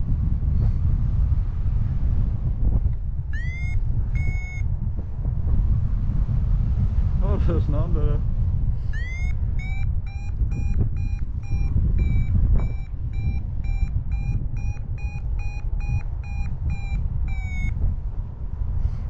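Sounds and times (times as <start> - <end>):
wind on microphone: 0.0 - 19.0
variometer high-pitched beeps: 3.3 - 4.7, 8.9 - 17.9.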